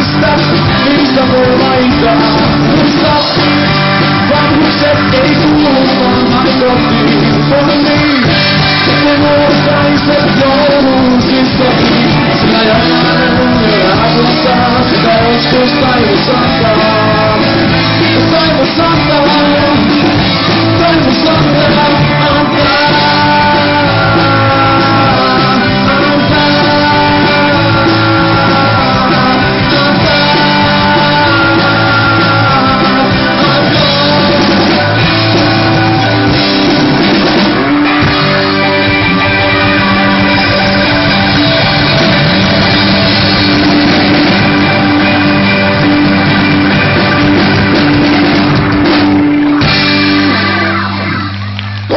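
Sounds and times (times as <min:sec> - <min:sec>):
man singing: 0:00.0 - 0:46.4
electric guitar: 0:00.0 - 0:51.9
rock band playing: 0:00.0 - 0:51.9.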